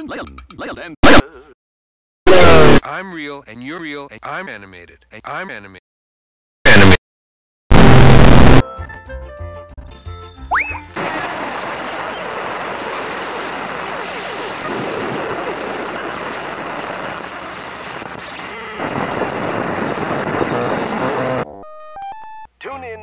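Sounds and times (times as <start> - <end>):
loud static rushing noise: 7.7 - 8.6, 11.0 - 21.4.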